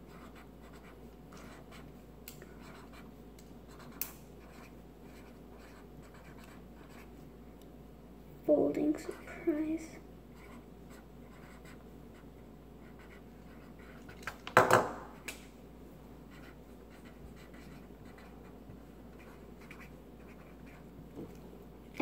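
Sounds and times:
marker scratching on paper: 0.0 - 7.2, 10.3 - 14.2, 16.3 - 20.9
knock: 14.6 - 15.0.

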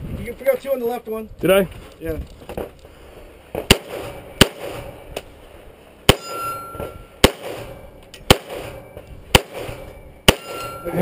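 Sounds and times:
pistol shots: 3.6 - 5.0, 6.1 - 10.8
steel target ringing: 6.1 - 7.9, 9.7 - 11.0.

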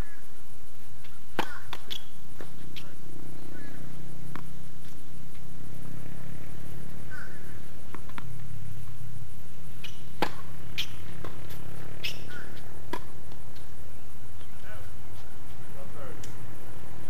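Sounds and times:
steady low hum: 0.0 - 17.0
racket crack on serve: 1.3 - 2.6, 9.8 - 13.7
tennis ball pops: 1.3 - 2.6, 9.8 - 13.7.

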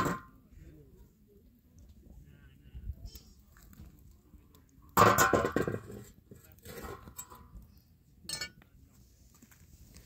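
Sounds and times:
metal griddle clanging: 5.0 - 6.0.

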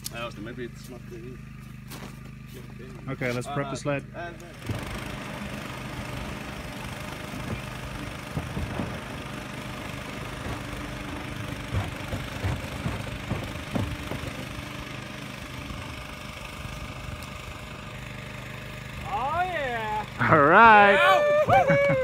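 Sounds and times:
generator engine running: 0.0 - 22.0
low thumps: 7.3 - 15.0.

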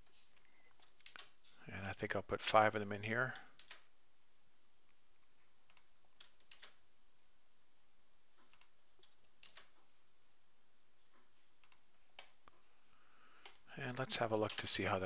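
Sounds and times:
keyboard and mouse clicks: 0.7 - 1.4, 3.6 - 3.9, 5.6 - 6.8, 8.4 - 9.8, 11.2 - 12.6, 14.3 - 14.9.

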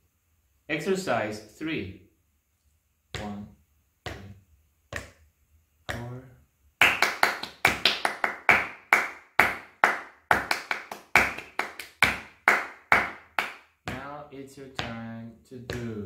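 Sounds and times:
hands clapping a rhythm: 3.2 - 3.4, 4.0 - 5.2, 5.9 - 16.0
person speaking a word: 3.2 - 3.5.

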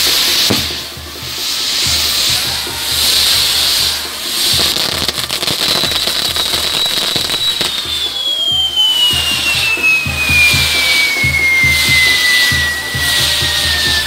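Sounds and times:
fireworks crackling: 0.0 - 14.0
fireworks hissing: 0.0 - 14.0
high whistle falling in pitch: 5.6 - 14.0.

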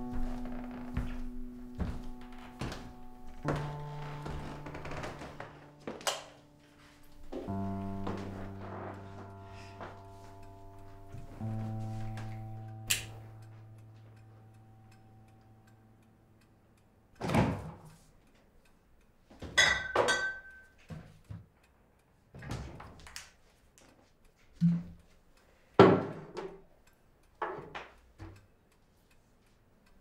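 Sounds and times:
held music chord: 0.0 - 17.1.

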